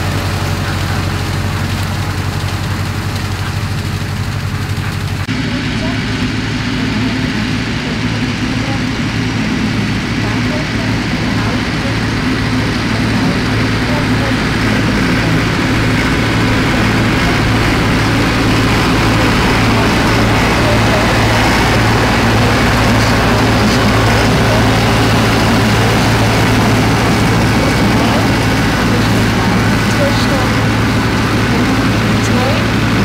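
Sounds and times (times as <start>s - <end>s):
tractor engines droning: 0.0s - 33.0s.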